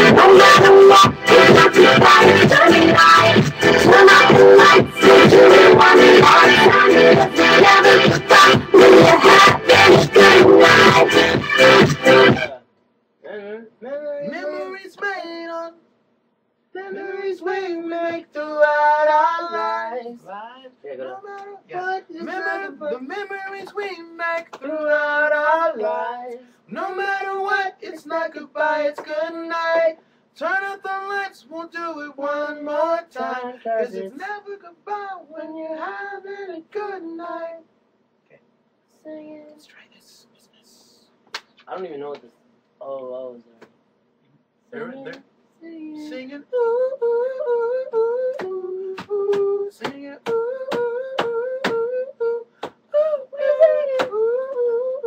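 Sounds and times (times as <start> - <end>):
person singing: 0.0 - 12.6, 13.3 - 15.8, 16.8 - 20.2, 20.9 - 37.6, 45.6 - 55.0
person humming: 45.6 - 55.0.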